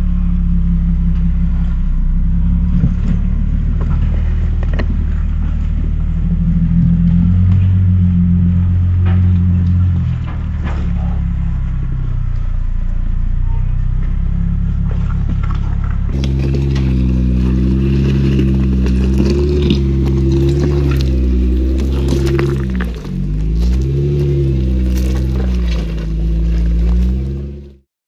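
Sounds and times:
engine running at low revs: 0.0 - 27.8
tyres scraping on rock: 15.0 - 27.7.

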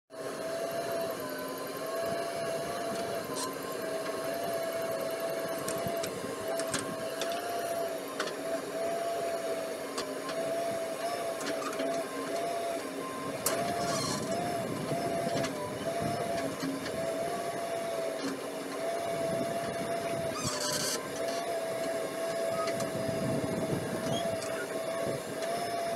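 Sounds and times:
engine running under load: 0.2 - 25.9
high hydraulic whine: 0.2 - 25.9.

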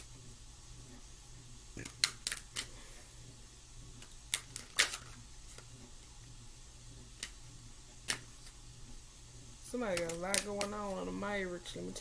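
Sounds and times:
cards snapping: 1.8 - 2.7, 4.3 - 5.1, 9.9 - 10.8.

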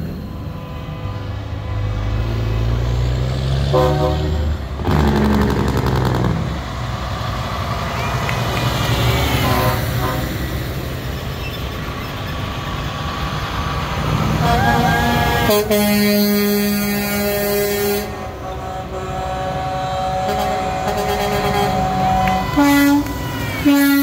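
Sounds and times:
diesel truck engines: 0.0 - 24.0
truck horn toot: 3.6 - 4.5, 9.4 - 10.5, 14.3 - 24.0.

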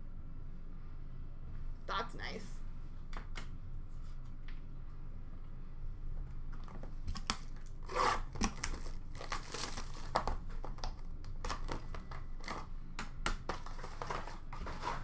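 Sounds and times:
plastic wrapping crinkling: 7.1 - 12.7.

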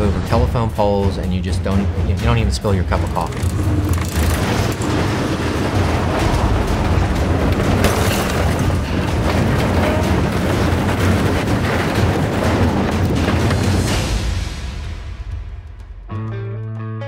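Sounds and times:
metal crunching: 2.1 - 14.8
heavy truck engine rumble: 2.8 - 14.6
glass breaking: 7.0 - 13.4.

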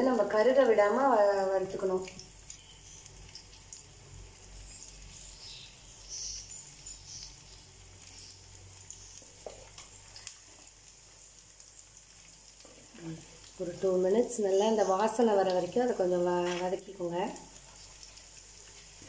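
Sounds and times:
food sizzling in oil: 0.0 - 19.0.

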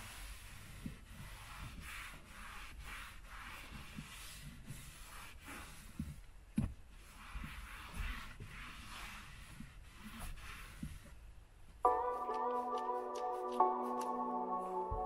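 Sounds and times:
towel wiping leather: 0.0 - 11.3.

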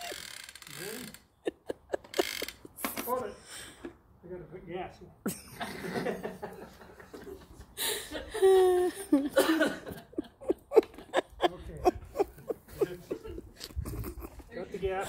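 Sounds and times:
person laughing: 0.0 - 3.3, 5.3 - 6.5, 7.2 - 14.5.

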